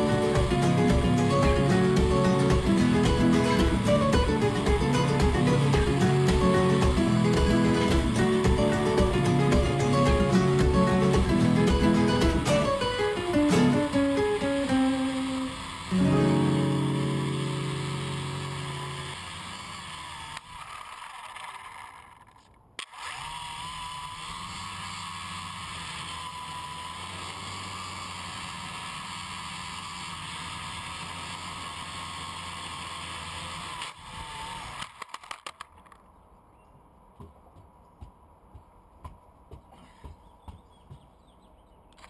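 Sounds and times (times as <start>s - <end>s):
quick run of clicks: 0.0s - 16.1s, 18.6s - 36.1s
quadcopter motors humming: 0.0s - 35.4s.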